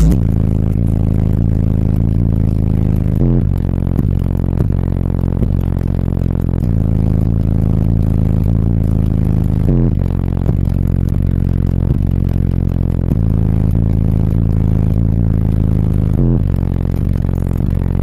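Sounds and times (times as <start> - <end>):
car subwoofers playing heavy bass: 0.0 - 18.0.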